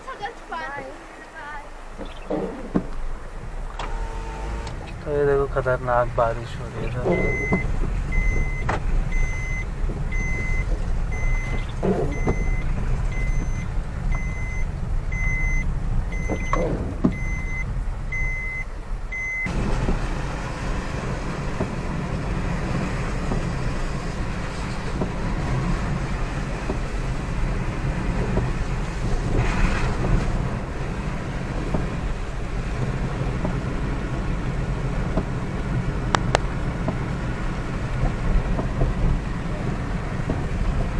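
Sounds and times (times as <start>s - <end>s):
car engine rumbling: 0.0s - 40.9s
heavy rain on moving car: 0.0s - 40.9s
car warning chime beeping: 7.0s - 19.6s.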